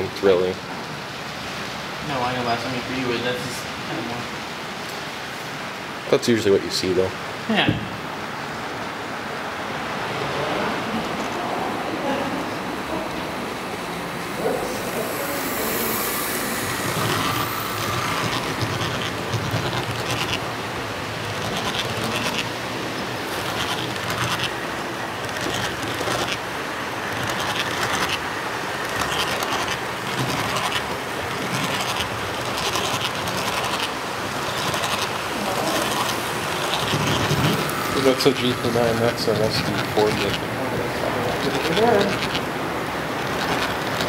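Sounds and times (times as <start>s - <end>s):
model train rumble and motor whir: 8.1s - 44.0s
wheels clicking over rail joints: 14.4s - 44.0s.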